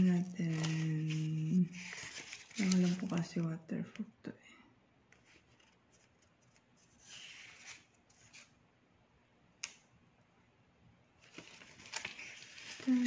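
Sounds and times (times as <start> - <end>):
paper pages rustling: 0.0 - 3.5, 5.1 - 8.6, 11.2 - 13.0.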